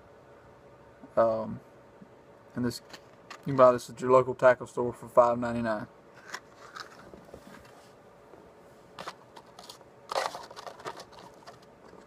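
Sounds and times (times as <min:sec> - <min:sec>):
plastic crinkles: 0:06.2 - 0:07.3, 0:09.0 - 0:12.0.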